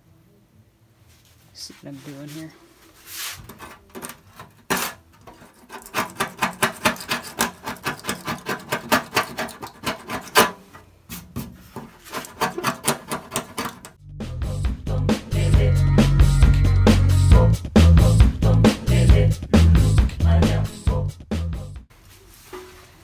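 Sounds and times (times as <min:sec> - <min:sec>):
metal scraper scraping paint: 0:03.4 - 0:14.0.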